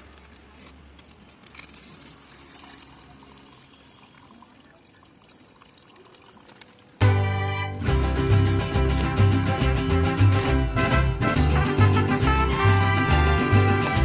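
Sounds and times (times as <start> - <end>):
water trickling onto ground: 0.0 - 7.0.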